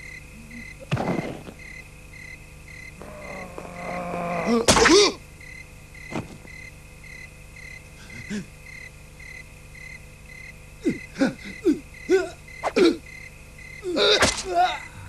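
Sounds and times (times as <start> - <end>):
cartoon thud: 0.9 - 1.6, 14.1 - 14.7.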